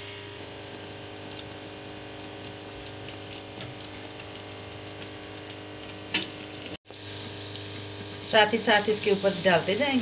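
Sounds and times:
hot oil bubbling and sizzling: 0.0s - 10.0s
small crackles: 2.2s - 8.2s.

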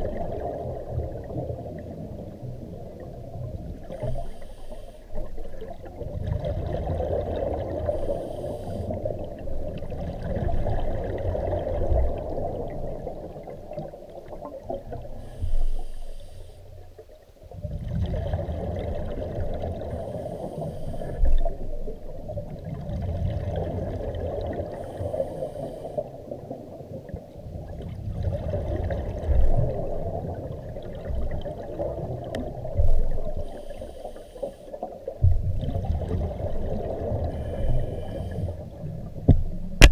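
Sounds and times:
exhaled bubbles rumbling: 0.0s - 4.3s, 5.1s - 15.4s, 16.8s - 25.4s, 26.0s - 34.0s, 34.8s - 39.9s
scuba regulator inhalation hiss: 3.9s - 5.2s, 7.8s - 9.0s, 15.2s - 16.8s, 19.9s - 21.2s, 24.7s - 26.1s, 33.4s - 34.8s, 37.3s - 38.6s.

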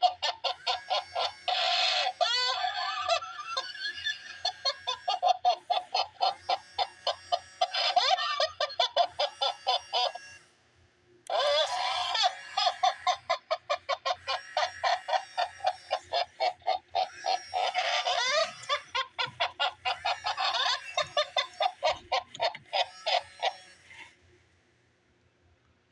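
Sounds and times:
toy giggling laugh: 0.0s - 10.5s, 11.2s - 24.2s.

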